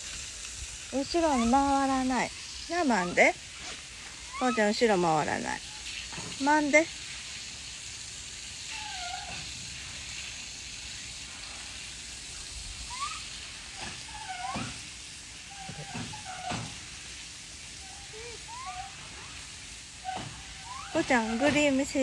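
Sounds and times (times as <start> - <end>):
steady faint hiss: 0.0 - 22.0
monkeys giving soft coo calls: 1.0 - 6.9, 8.6 - 9.8, 12.7 - 14.8, 15.4 - 16.8, 17.6 - 22.0.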